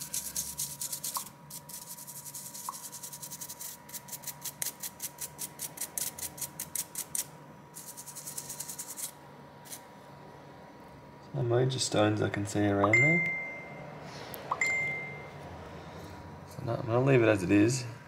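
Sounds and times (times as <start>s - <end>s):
toothbrush scrubbing phone speaker: 0.0s - 9.8s.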